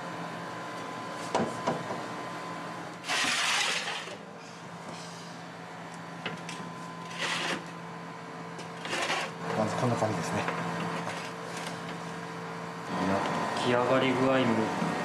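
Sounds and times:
oven and kitchen equipment hum: 0.0s - 15.0s
rushing scrape: 3.1s - 4.0s.

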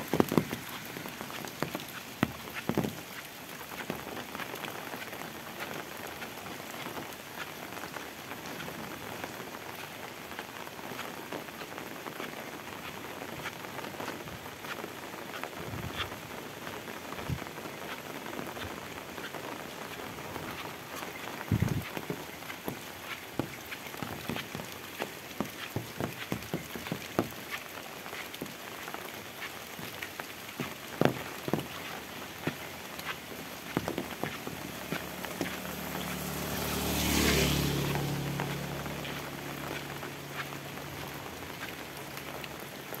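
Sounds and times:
heavy rain falling: 0.0s - 43.0s
vehicle passing on wet road: 0.0s - 43.0s.

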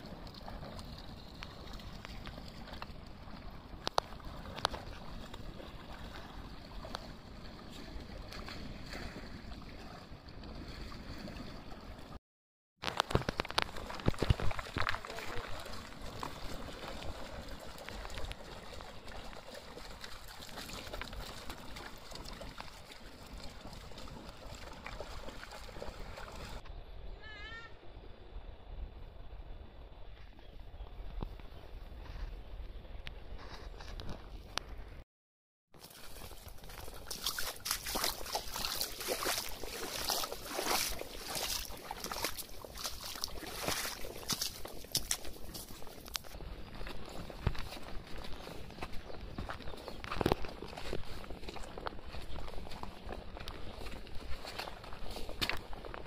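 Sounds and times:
river water running: 0.0s - 12.2s, 12.8s - 26.6s, 35.8s - 56.0s
stones clicking under paws: 12.8s - 15.6s, 47.4s - 56.0s
splashing steps in puddles: 12.8s - 26.6s, 35.8s - 56.0s.

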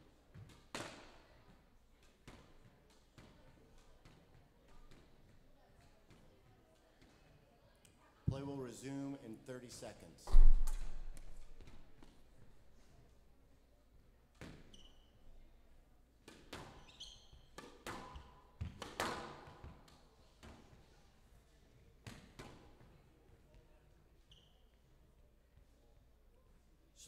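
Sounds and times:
racket striking squash ball: 10.3s - 12.1s, 16.2s - 19.8s
court shoes squeaking: 14.4s - 15.5s, 16.2s - 19.8s, 23.5s - 25.0s.

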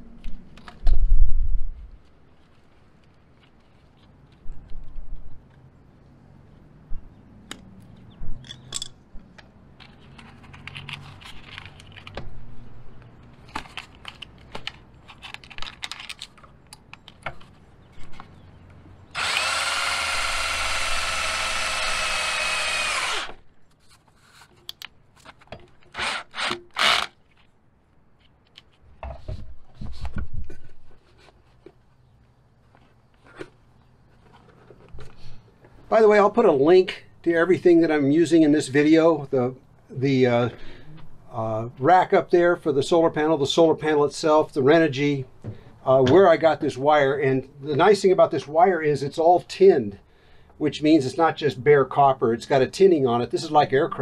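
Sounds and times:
cordless drill drilling: 19.1s - 23.4s, 25.9s - 27.2s.

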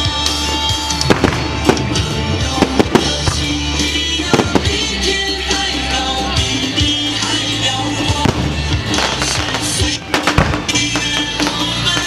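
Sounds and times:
music playing: 0.0s - 12.0s
fireworks bangs: 0.4s - 5.0s, 8.0s - 12.0s.

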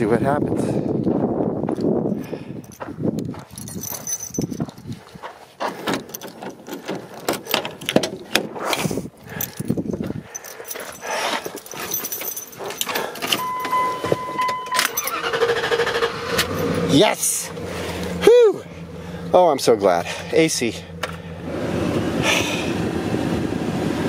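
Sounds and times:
footsteps: 1.0s - 14.4s
keys jangling: 1.8s - 15.3s
truck door handling: 5.6s - 8.6s
steady warning tone: 12.2s - 15.4s
starter cranking engine: 14.8s - 18.2s.

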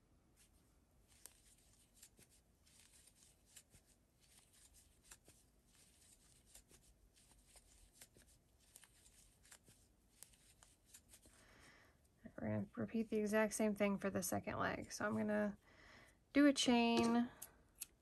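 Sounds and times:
yarn rustling: 0.4s - 11.5s
crochet hook clicks: 17.8s - 18.0s.

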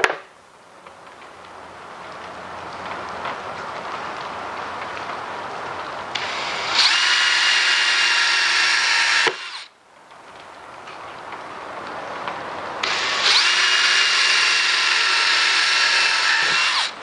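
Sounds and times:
cordless drill boring into wood: 6.2s - 9.7s, 12.8s - 17.0s.

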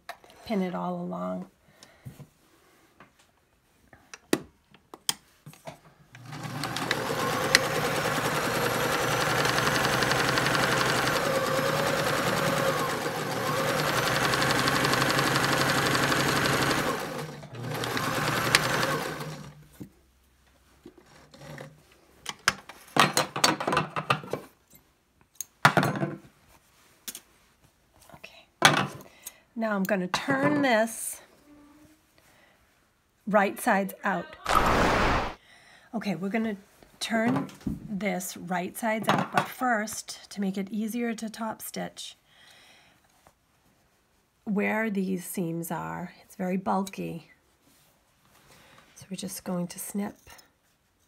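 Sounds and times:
sewing machine stitching: 6.2s - 19.6s.

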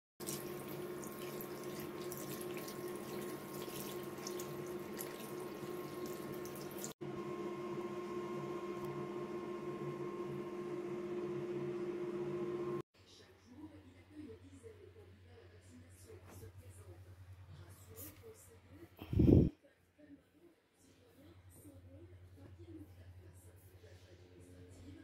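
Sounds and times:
tap water splashing onto towel: 0.2s - 6.9s.

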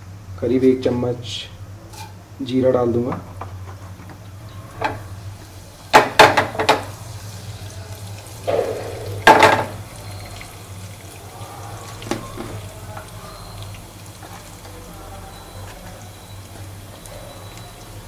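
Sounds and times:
seeds sizzling in hot oil: 5.1s - 18.0s.

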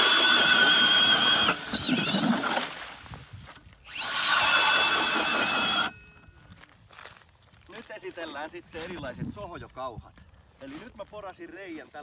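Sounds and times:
cordless drill motor whining: 0.0s - 2.8s, 3.8s - 6.1s.

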